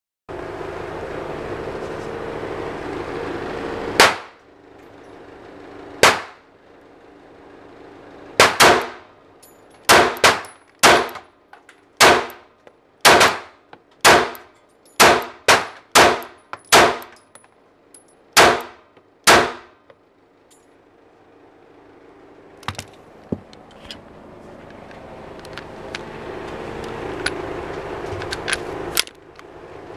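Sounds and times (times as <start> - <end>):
pistol shots: 4.0 - 4.4, 6.0 - 6.4, 8.4 - 9.0, 9.9 - 11.2, 12.0 - 12.4, 13.0 - 17.2, 18.4 - 19.7.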